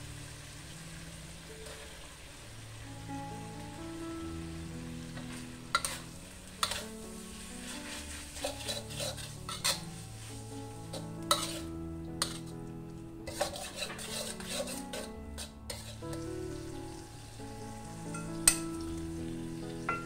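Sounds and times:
soft background music: 0.0s - 20.0s
metal spatula scraping wok: 1.6s - 2.1s, 5.2s - 16.3s.

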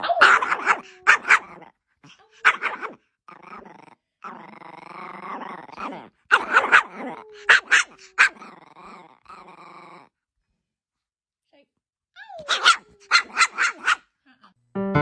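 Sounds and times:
small dog yapping: 0.0s - 3.0s, 5.8s - 9.4s, 12.2s - 14.0s
small dog growling: 0.0s - 10.2s.

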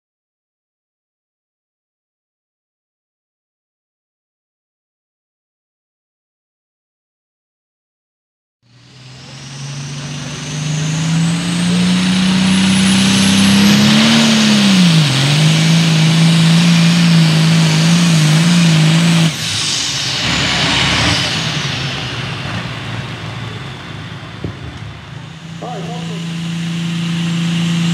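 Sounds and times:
diesel engine running flat out: 8.6s - 27.9s
high turbo whine: 8.6s - 27.9s
hiss: 18.9s - 22.4s.

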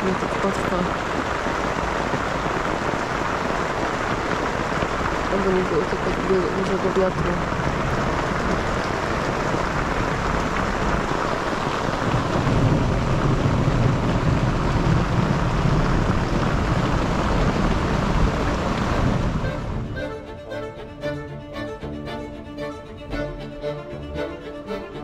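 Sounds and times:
heavy rain on a tent: 0.0s - 25.0s
thunder rumbling: 0.0s - 25.0s
background music: 19.4s - 25.0s.

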